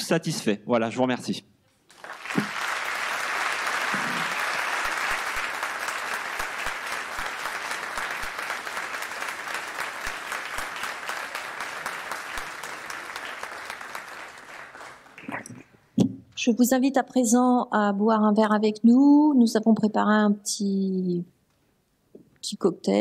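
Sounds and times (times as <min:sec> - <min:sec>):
people applauding: 0:01.9 - 0:15.6.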